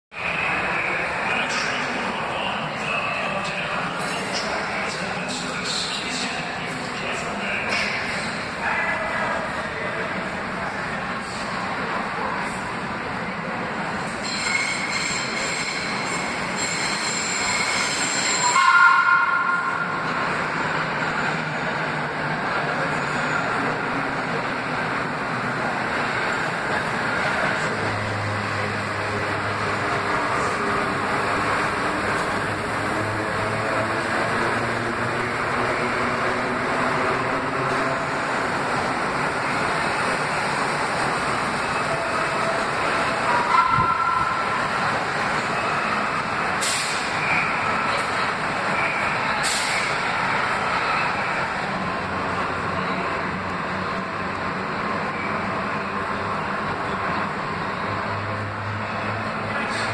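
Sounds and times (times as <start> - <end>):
subway train rail noise: 0.1 - 59.9
two-tone train horn blast: 18.4 - 20.0, 43.4 - 44.4.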